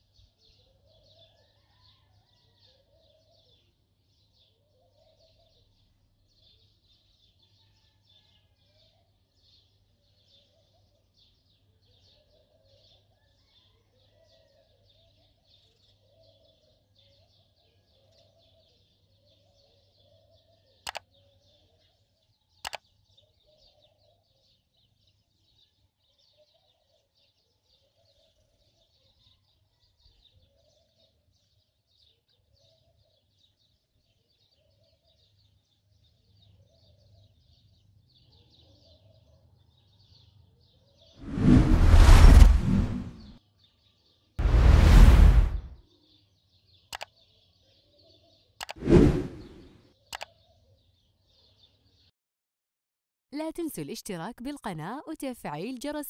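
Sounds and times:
faint birdsong: 0.0s - 41.2s
low hum: 41.2s - 43.4s, 44.4s - 45.8s, 48.8s - 49.7s.

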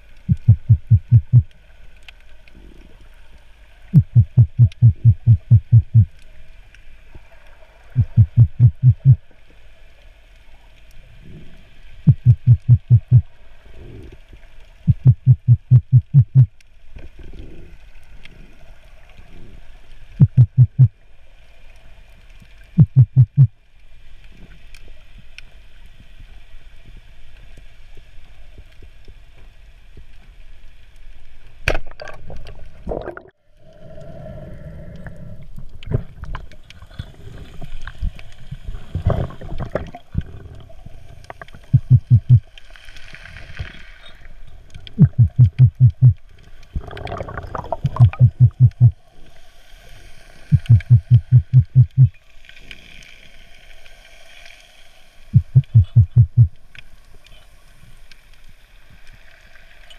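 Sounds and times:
rapid low thumps: 0.3s - 1.4s, 4.0s - 6.1s, 8.0s - 9.2s, 12.1s - 13.2s, 14.9s - 16.5s, 20.2s - 20.9s, 22.8s - 23.5s, 41.7s - 42.4s, 45.0s - 46.2s, 47.8s - 49.0s, 50.5s - 52.1s, 55.4s - 56.5s
underwater watery hiss: 42.4s - 44.9s, 49.0s - 51.2s, 52.2s - 55.4s.

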